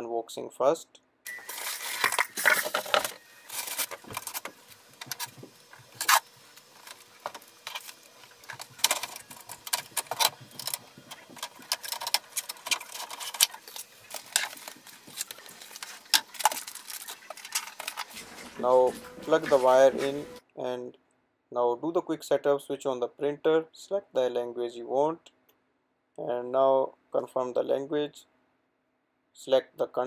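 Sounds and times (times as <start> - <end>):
packaging rustling: 1.3 - 20.4
plastic parts clicking and knocking: 2.0 - 18.4.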